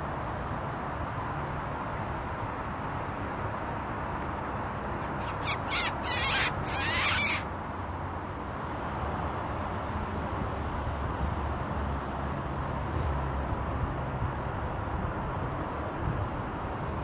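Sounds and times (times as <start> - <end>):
squeak call: 5.0 - 7.5.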